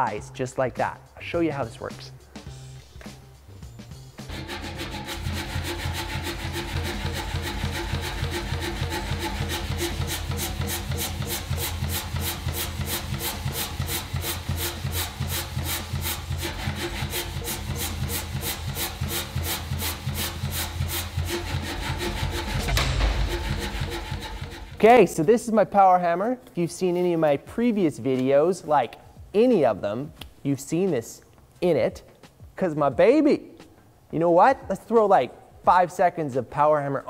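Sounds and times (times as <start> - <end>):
power hammer motor humming: 4.2 - 24.8
power hammer light strokes: 4.2 - 25.2.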